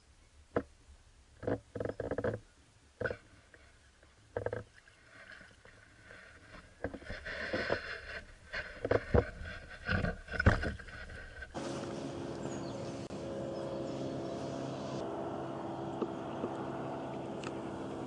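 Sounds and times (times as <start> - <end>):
water splashing and sloshing: 1.4 - 15.3.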